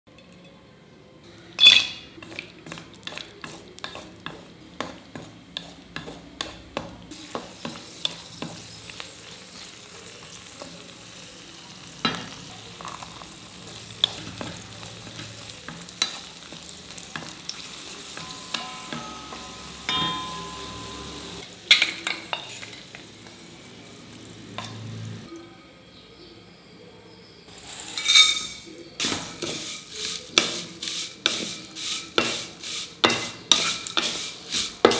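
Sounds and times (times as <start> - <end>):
nuts frying in ghee sizzling: 1.6 - 25.3, 27.5 - 34.9.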